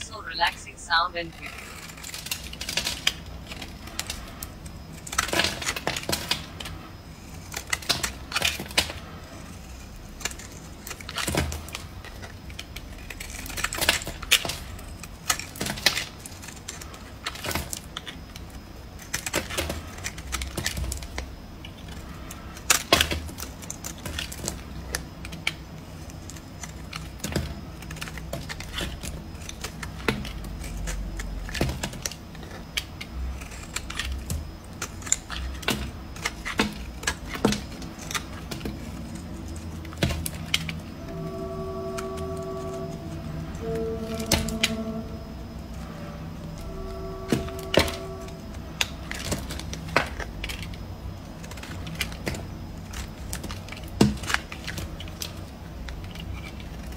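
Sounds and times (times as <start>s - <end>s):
blade scraping soap: 33.4s - 34.1s.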